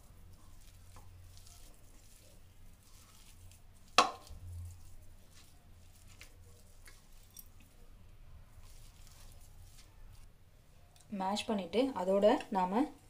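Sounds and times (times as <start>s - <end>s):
potatoes being mashed: 0.0s - 10.3s.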